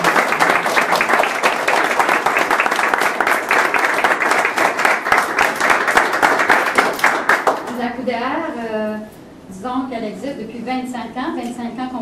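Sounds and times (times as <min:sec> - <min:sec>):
crowd applauding: 0:00.0 - 0:07.8.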